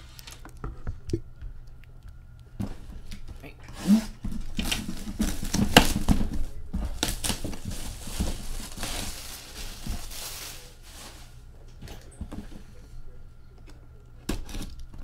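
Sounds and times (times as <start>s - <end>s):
cardboard and plastic wrap rustling: 2.6s - 12.7s.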